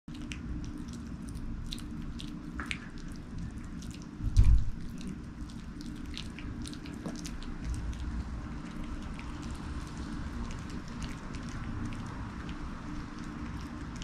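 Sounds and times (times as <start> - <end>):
dogs gnawing on chew sticks: 0.1 - 14.0
loud low thump: 4.2 - 4.8.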